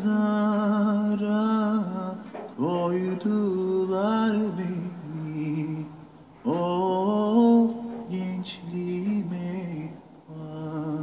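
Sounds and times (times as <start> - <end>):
person singing unaccompanied: 0.0 - 11.0.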